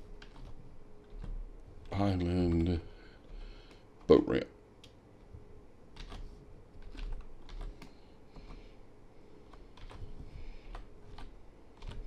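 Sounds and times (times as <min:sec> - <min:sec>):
computer keyboard typing: 0:00.0 - 0:04.2, 0:05.9 - 0:08.7, 0:09.5 - 0:12.0.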